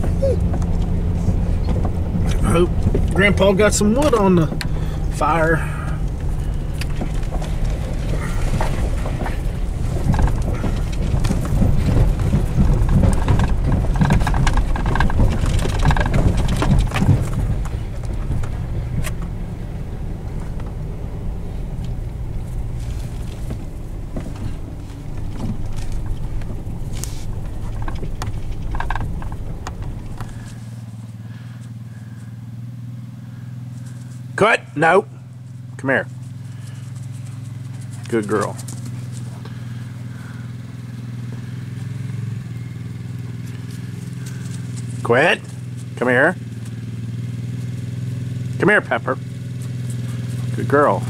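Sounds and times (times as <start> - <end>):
knocks and rattles: 0.0 - 19.6, 21.8 - 31.0
vehicle engine and tyre rumble: 0.0 - 51.0.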